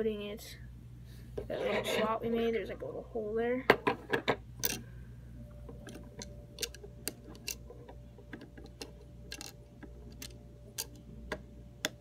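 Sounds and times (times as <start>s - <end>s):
plastic pieces clicking on wood: 6.6s - 7.7s, 8.4s - 11.0s.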